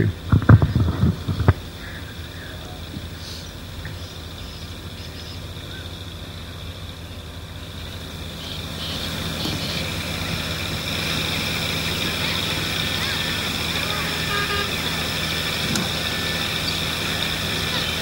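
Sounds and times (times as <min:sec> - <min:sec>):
mechanical drone with high whine: 0:00.0 - 0:18.0.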